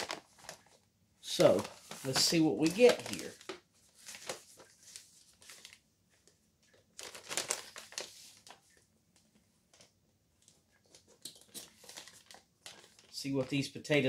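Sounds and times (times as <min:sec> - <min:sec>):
paper bag crinkling: 0:00.0 - 0:05.8, 0:06.7 - 0:08.8, 0:10.9 - 0:13.6.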